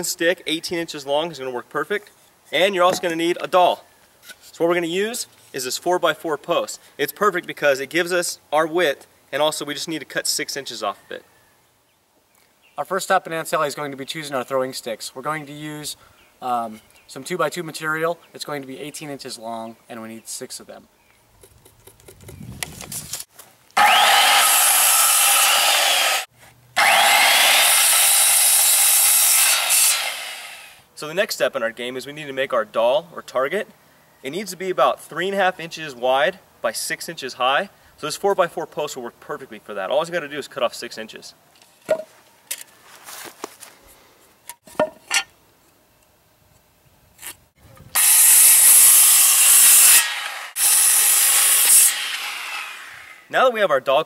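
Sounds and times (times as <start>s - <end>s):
circular saw cutting wood: 23.8s - 30.8s, 48.0s - 53.3s.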